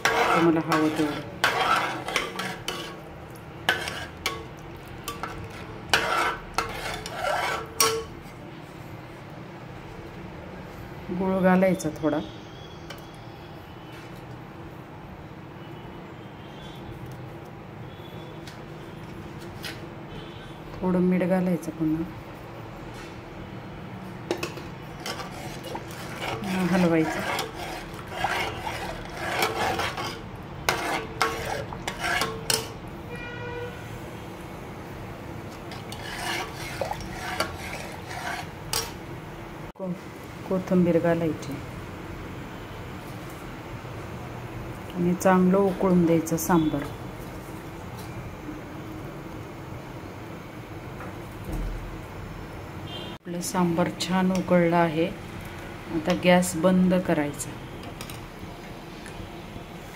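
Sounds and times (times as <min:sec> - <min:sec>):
ladle stirring thick stew: 0:00.0 - 0:08.4, 0:24.2 - 0:32.9, 0:35.4 - 0:39.0
metal spatula scraping pot: 0:00.0 - 0:08.4, 0:24.3 - 0:32.8, 0:35.5 - 0:39.0.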